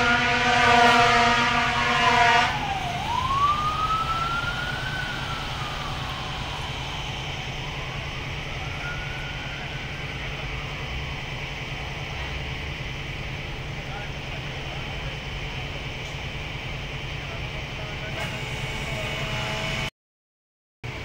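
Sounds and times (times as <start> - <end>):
loud horn blast: 0.0 - 3.3, 18.1 - 19.9
emergency siren wailing: 0.0 - 19.9
low engine rumble: 0.0 - 19.9.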